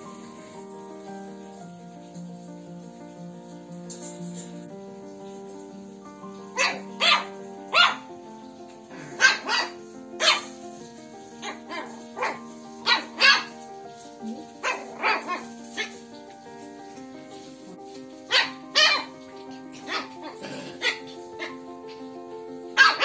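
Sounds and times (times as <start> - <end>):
background music with held notes: 0.0 - 23.0
small dog barking: 6.5 - 8.1, 9.0 - 10.6, 11.4 - 13.6, 14.4 - 16.0, 18.3 - 22.0, 22.7 - 23.0.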